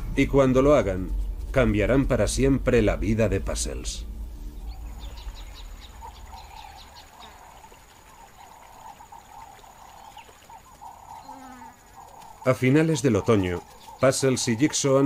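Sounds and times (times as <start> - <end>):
low insect chorus: 3.0 - 15.0
insects trilling high: 4.4 - 15.0.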